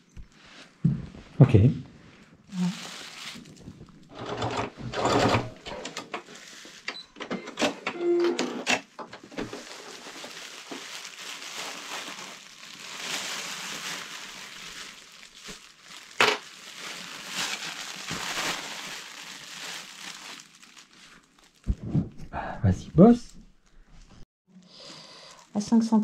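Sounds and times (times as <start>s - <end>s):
fabric rustling and crinkling: 2.0s - 4.6s, 6.1s - 6.9s, 9.2s - 22.1s.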